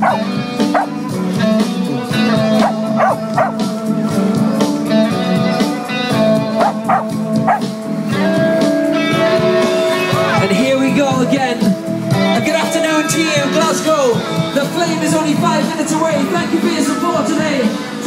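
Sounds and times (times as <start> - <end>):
pop music over loudspeakers: 0.0 - 18.0.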